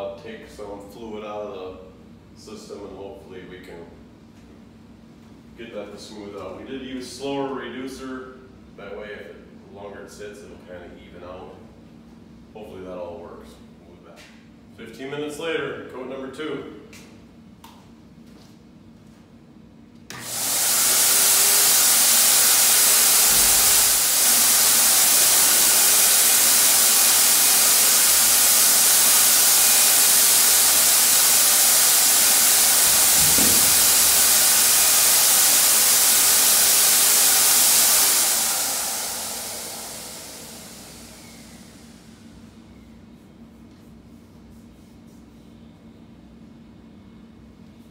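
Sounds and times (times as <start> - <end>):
paint sprayer turbine rushing air: 20.1 - 42.6.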